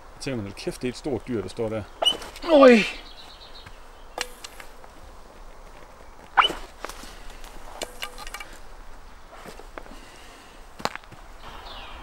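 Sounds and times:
sharp falling squeak: 0:02.0 - 0:02.4, 0:06.4 - 0:06.7
arrow shafts clicking and rattling: 0:07.7 - 0:08.6.

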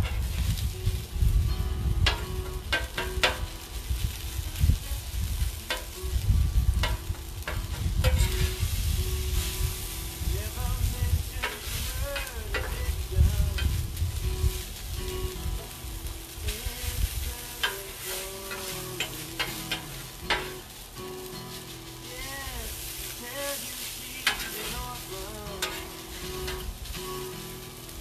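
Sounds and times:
food sizzling on griddle: 0:00.0 - 0:28.0
metal spatula scraping steel: 0:06.8 - 0:09.8, 0:17.6 - 0:20.7, 0:22.6 - 0:26.7.

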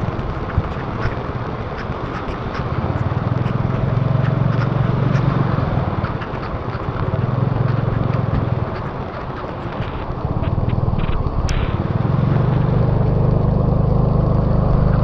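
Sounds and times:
raindrops ticking: 0:00.0 - 0:11.7
heavy rain hissing: 0:00.0 - 0:15.0
motorbike engine revving: 0:00.0 - 0:15.0.

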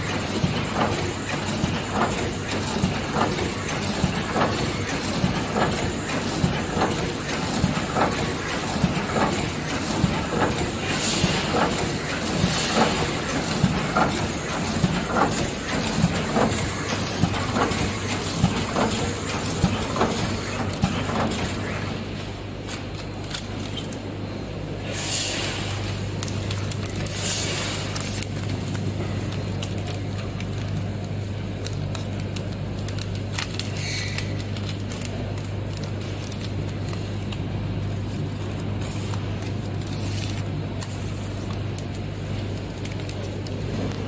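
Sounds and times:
packing machine knocking: 0:00.0 - 0:22.0
constant machine noise: 0:00.0 - 0:44.0.

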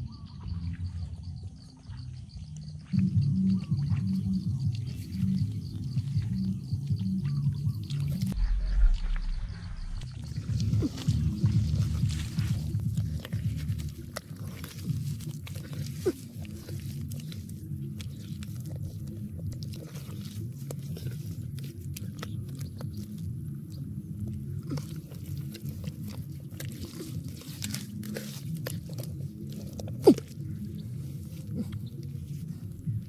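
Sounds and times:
steady low rumble: 0:02.2 - 0:22.4
hands squelching wet mud: 0:02.2 - 0:33.0.

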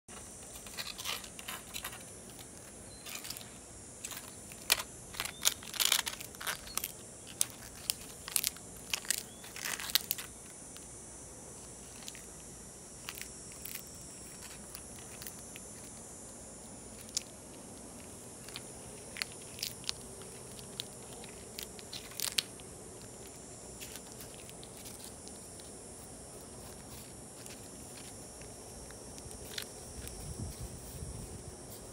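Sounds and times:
steady high hiss: 0:00.1 - 0:31.9
dog chewing dry leaves: 0:04.1 - 0:10.3, 0:16.8 - 0:30.6.

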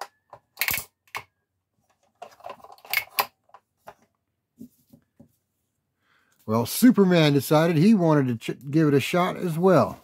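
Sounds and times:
plastic toy parts clicking: 0:00.0 - 0:01.3, 0:02.2 - 0:03.6.

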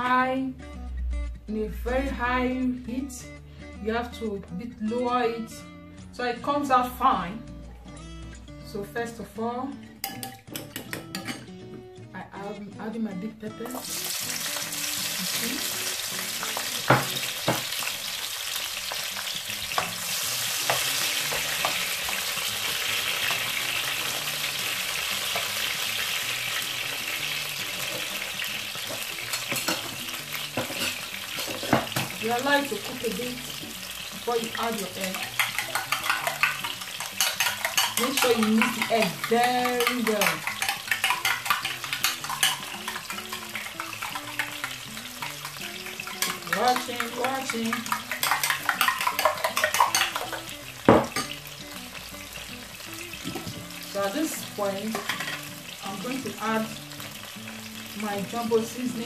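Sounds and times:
pepper sizzling in oil: 0:13.6 - 0:59.0
spatula clicking against a pan: 0:35.1 - 0:50.5
fork beating eggs in glass bowl: 0:35.2 - 0:44.7, 0:46.2 - 0:50.4.

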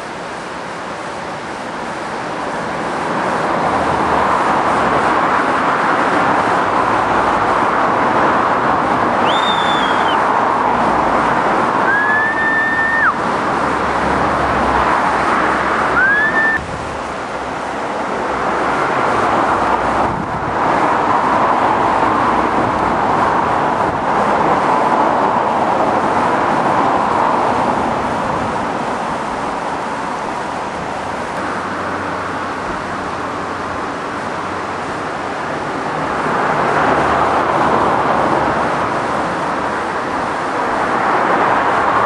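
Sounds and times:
steady rushing noise: 0:00.0 - 0:42.0
short high whistles: 0:09.2 - 0:10.2, 0:11.8 - 0:13.2, 0:16.0 - 0:16.6.

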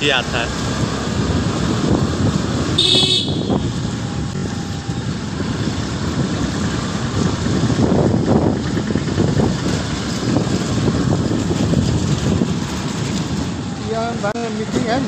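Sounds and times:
motorcycle engine and road noise: 0:00.0 - 0:15.0
short high horn toot: 0:02.8 - 0:03.7.

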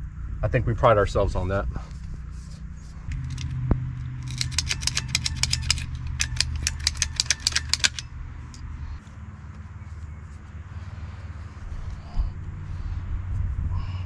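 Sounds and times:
ratcheting hand tool clicking: 0:03.1 - 0:03.6, 0:04.2 - 0:08.6.

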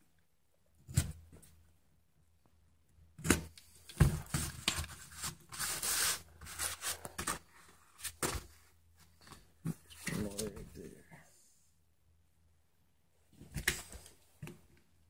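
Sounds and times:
paper rustling and sliding: 0:04.2 - 0:08.5.

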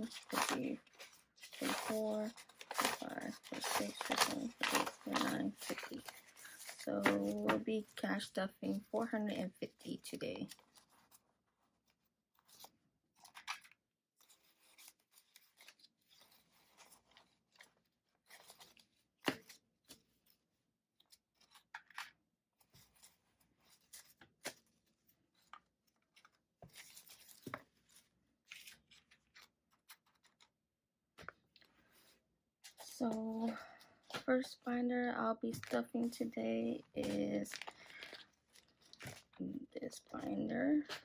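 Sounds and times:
paper banknotes rustling: 0:00.0 - 0:09.2, 0:35.6 - 0:41.0.

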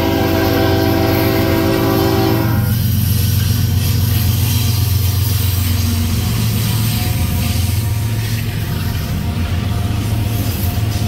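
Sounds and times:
locomotive air horn: 0:00.0 - 0:02.8
locomotive engine rumble: 0:00.0 - 0:11.0
rolling train wheels: 0:00.0 - 0:11.0.

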